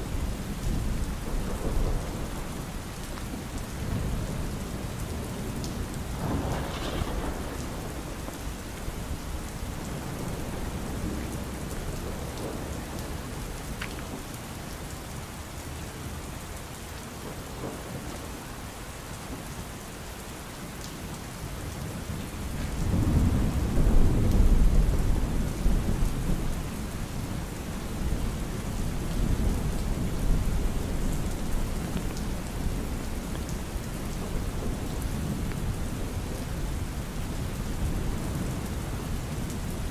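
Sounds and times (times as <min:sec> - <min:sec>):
rain on an umbrella: 0:00.0 - 0:39.9
rolling thunder: 0:00.8 - 0:13.5, 0:22.4 - 0:26.9.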